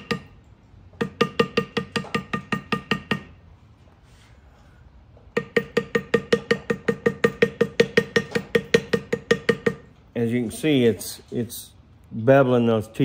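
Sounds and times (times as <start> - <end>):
mallet tapping leather tool: 0.0 - 0.4, 1.0 - 3.4, 5.3 - 10.0.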